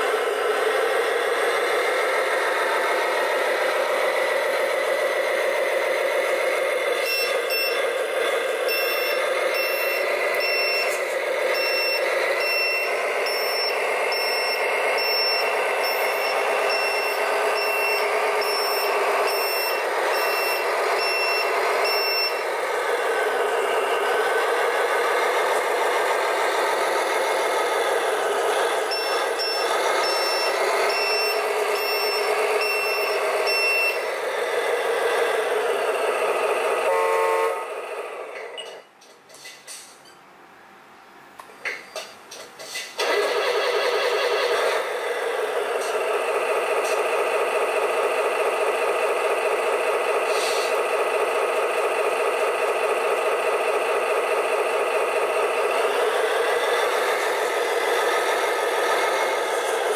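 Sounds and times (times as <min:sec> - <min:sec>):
diesel engine running: 0:00.0 - 0:38.6, 0:42.7 - 0:59.9
reversing beeper: 0:06.9 - 0:08.0, 0:08.6 - 0:26.3, 0:28.8 - 0:34.2.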